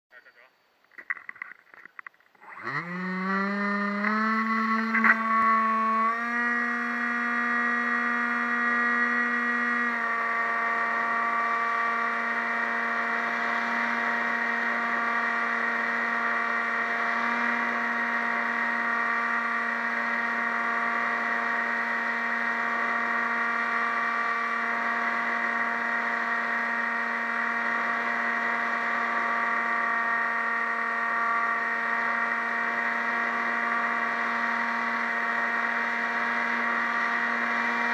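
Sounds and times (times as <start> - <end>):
model plane motor whining: 1.0 - 37.9.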